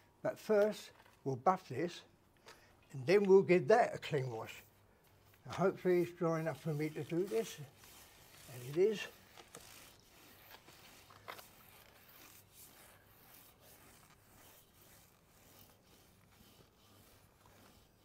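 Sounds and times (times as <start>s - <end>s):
broom bristles scrubbing tiles: 5.2s - 18.0s.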